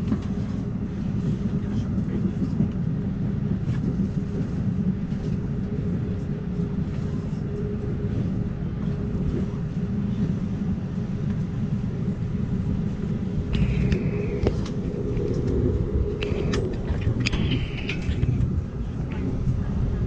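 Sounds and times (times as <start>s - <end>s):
train wheels rumbling on rails: 0.0s - 20.0s
faint steady hum: 6.8s - 20.0s.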